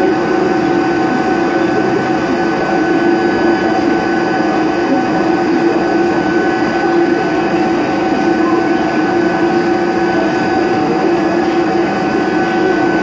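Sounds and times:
milling machine whine: 0.0s - 13.0s.

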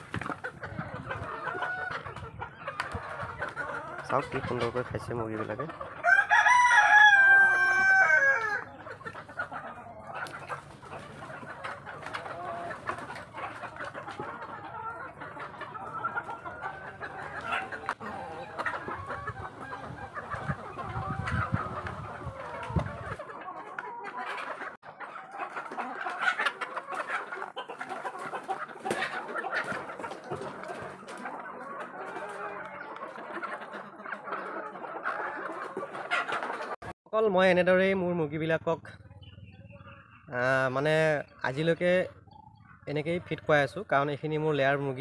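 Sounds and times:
hens clucking: 0.0s - 45.0s
rooster crowing: 6.0s - 8.6s.

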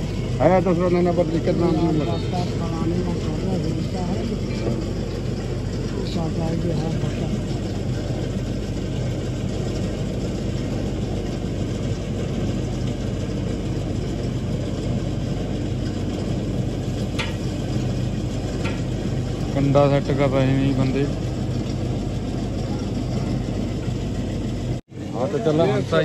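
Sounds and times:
engine idling: 0.0s - 26.0s.

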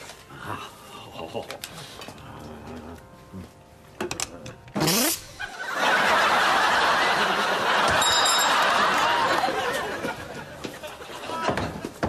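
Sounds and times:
studio audience laughing: 5.4s - 12.0s.

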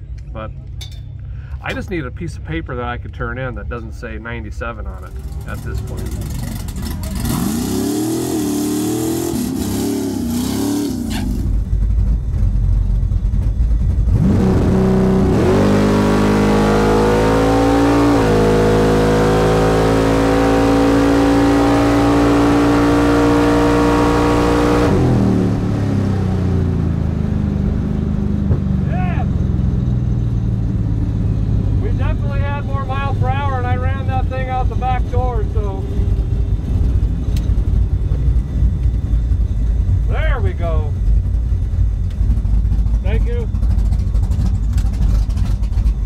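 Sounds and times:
gearshift: 0.1s - 25.2s
truck engine revving: 4.4s - 12.5s, 13.3s - 46.0s.

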